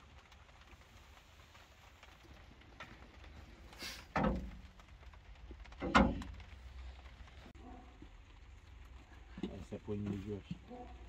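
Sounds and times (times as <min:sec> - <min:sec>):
wooden rods knocking on metal: 0:04.1 - 0:04.6, 0:05.7 - 0:06.5.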